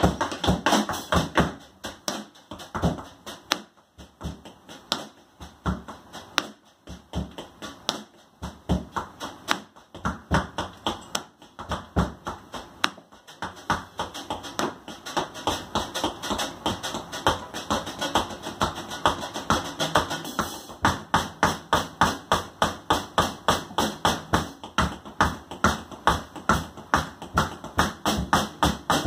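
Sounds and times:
tap shoes striking a board: 0:00.0 - 0:29.0.

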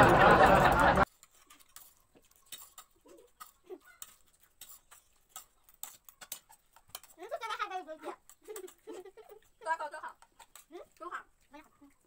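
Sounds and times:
cutlery clicking on plates: 0:02.4 - 0:07.3.

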